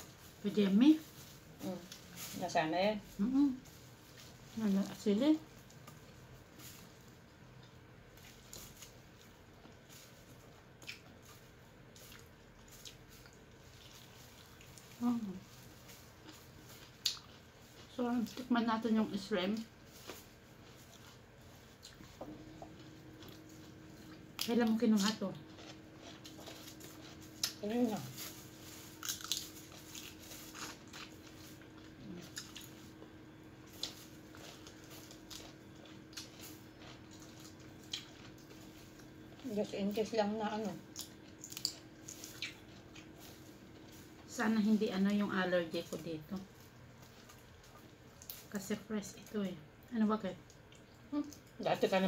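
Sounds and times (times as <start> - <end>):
mouth chewing sounds: 7.5 - 18.5, 19.6 - 28.1, 28.9 - 44.3.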